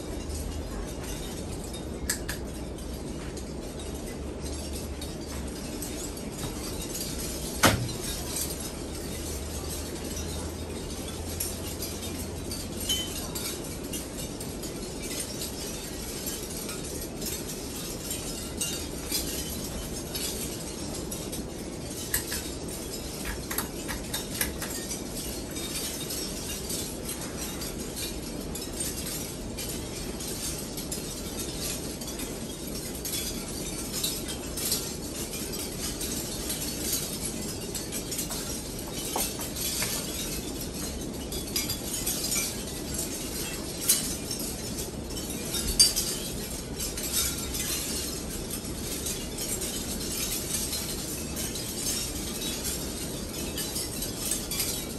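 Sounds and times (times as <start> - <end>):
ceiling fan air rush: 0.0 - 54.9
light clinks and ticks: 0.0 - 54.9.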